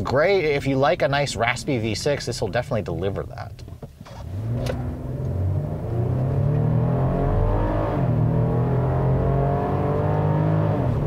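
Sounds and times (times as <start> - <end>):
car engine accelerating hard: 4.1 - 11.0.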